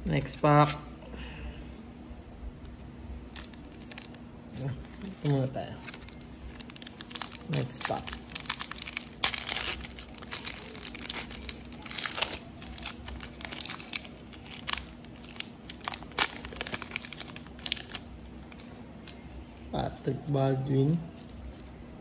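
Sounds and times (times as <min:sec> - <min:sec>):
foil wrapper crinkling and tearing: 0:03.3 - 0:19.2, 0:21.1 - 0:21.7.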